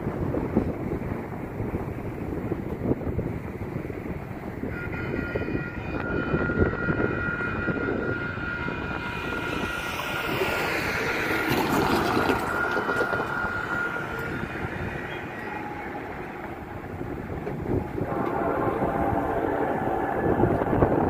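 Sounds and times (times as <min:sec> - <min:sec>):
low wind rumble: 0:00.0 - 0:21.0
crossing warning bell ringing: 0:04.6 - 0:21.0
car driving past: 0:07.2 - 0:18.2.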